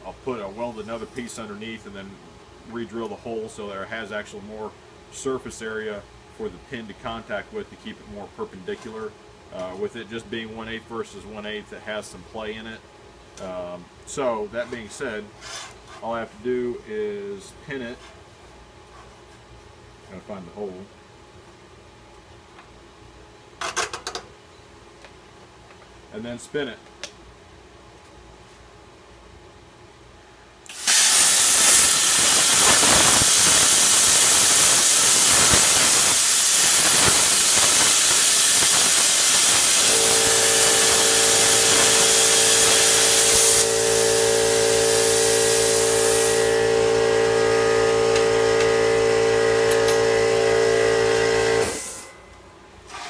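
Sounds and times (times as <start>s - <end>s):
steady hum: 24.5s - 52.8s
plasma cutter hissing: 30.7s - 46.8s, 51.5s - 52.0s.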